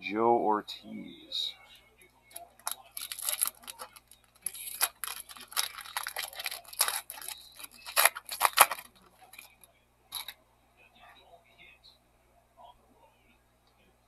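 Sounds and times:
foil wrapper tearing and crinkling: 0:02.6 - 0:09.6.

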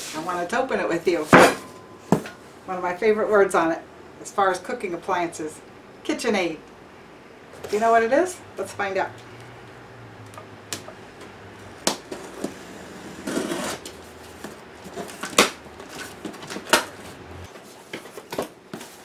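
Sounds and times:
rustle: 0:00.0 - 0:02.6, 0:12.1 - 0:19.0
box cutter slitting packing tape: 0:13.1 - 0:13.9.

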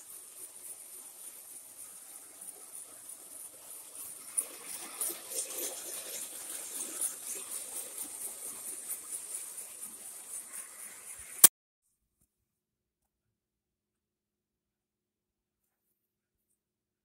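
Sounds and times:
toy train rattling on track: 0:00.0 - 0:11.5.

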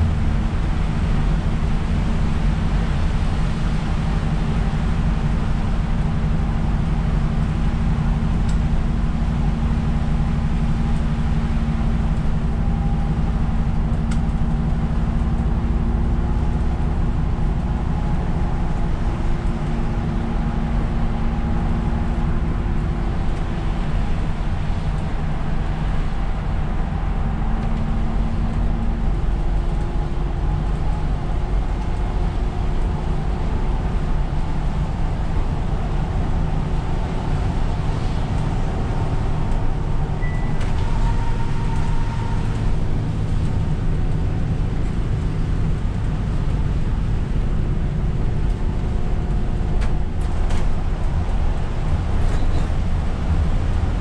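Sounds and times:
bus diesel engine drone: 0:00.0 - 0:54.0
tyres hissing on wet road: 0:15.7 - 0:49.0.

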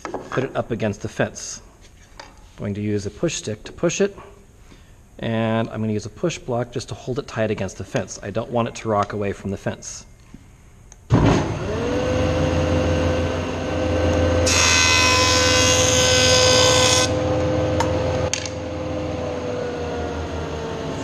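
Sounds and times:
jointer motor winding down: 0:11.2 - 0:21.0
board being cut on jointer: 0:11.3 - 0:21.0.

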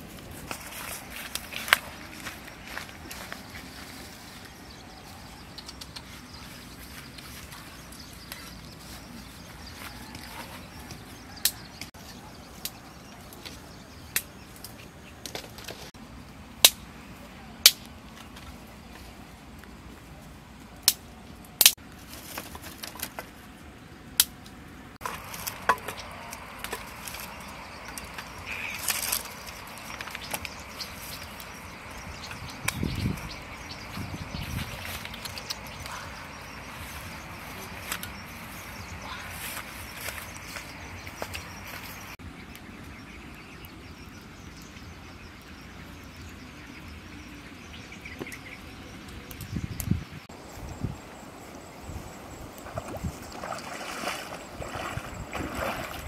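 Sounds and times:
rustle: 0:00.0 - 0:56.0
dry sticks clicking and knocking: 0:24.2 - 0:32.9, 0:34.8 - 0:36.2
insect chirps: 0:25.0 - 0:42.2, 0:42.9 - 0:56.0.

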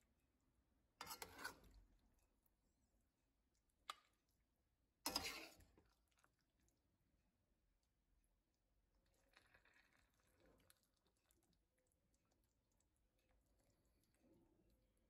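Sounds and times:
spatula scraping a plate: 0:01.0 - 0:01.8, 0:05.1 - 0:05.6.

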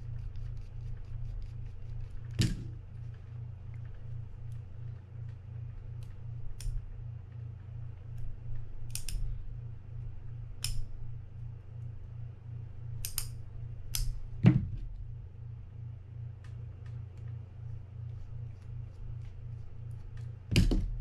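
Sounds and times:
steady low hum: 0:00.0 - 0:21.0
tweezers clicking on metal: 0:13.0 - 0:14.2.

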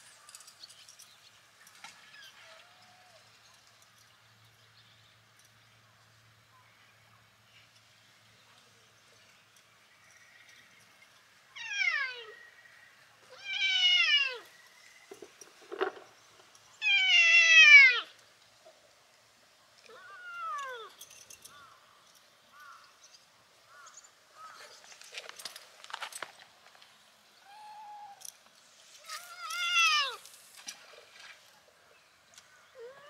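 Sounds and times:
clicks and rustles: 0:14.9 - 0:16.7, 0:24.5 - 0:27.0.

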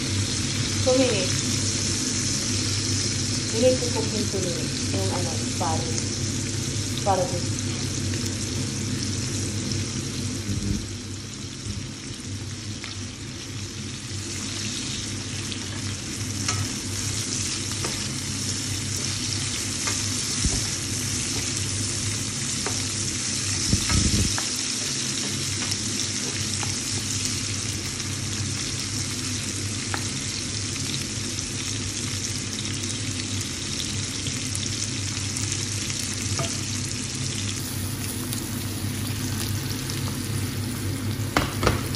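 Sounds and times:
steady low hum: 0:00.0 - 0:31.3
vegetables sizzling in a frying pan: 0:00.0 - 0:41.9.

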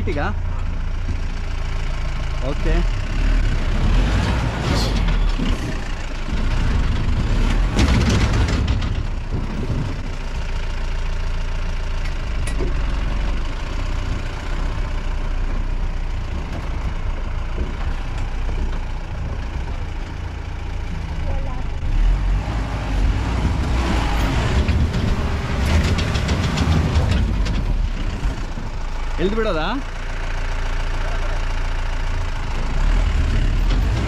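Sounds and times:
jeep engine running: 0:00.0 - 0:34.0
clattering: 0:04.1 - 0:10.5, 0:23.1 - 0:28.8.

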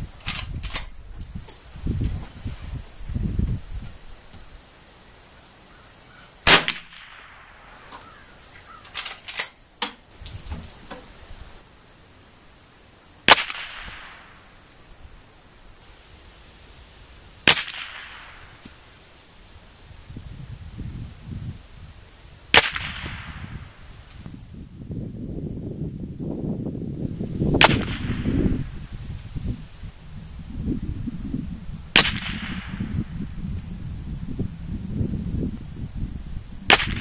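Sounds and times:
high insect trill: 0:00.0 - 0:37.0
rifle shots with echo: 0:06.5 - 0:07.4
rifle lever clicks: 0:08.9 - 0:11.1.

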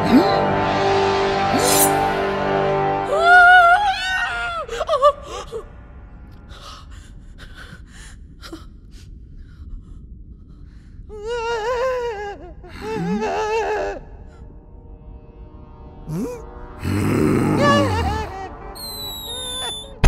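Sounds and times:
man crying out in terror: 0:17.4 - 0:19.9.

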